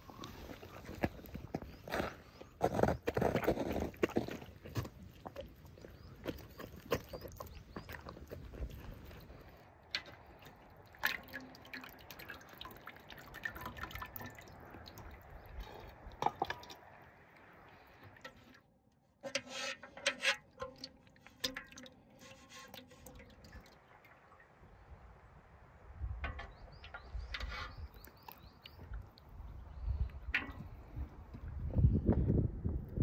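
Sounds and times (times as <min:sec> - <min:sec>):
broth dripping into pot: 0:09.0 - 0:18.6, 0:20.0 - 0:24.5, 0:30.0 - 0:31.2.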